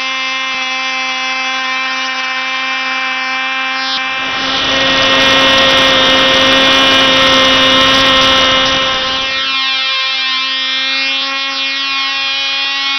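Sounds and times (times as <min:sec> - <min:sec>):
model airplane engine buzzing: 0:00.0 - 0:12.9
rushing wind: 0:04.0 - 0:09.4.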